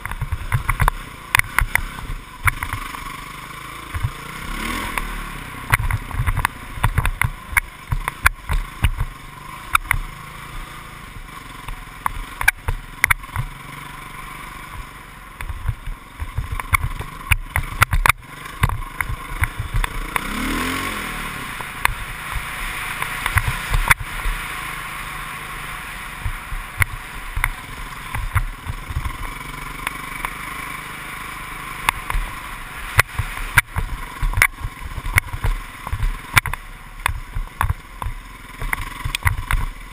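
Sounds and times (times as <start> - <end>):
off-road vehicle engine: 0.0 - 39.9
knocks and rattles from bumps: 14.7 - 20.0.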